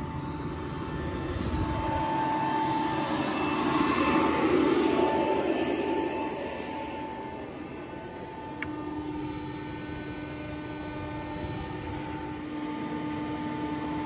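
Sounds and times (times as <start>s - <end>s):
farm machinery humming: 0.0s - 14.0s
steady whine: 0.0s - 14.0s.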